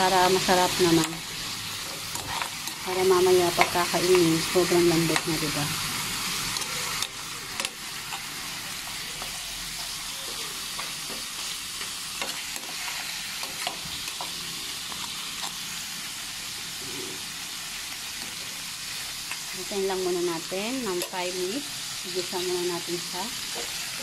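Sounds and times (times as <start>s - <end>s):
meat sizzling in a frying pan: 0.0s - 24.0s.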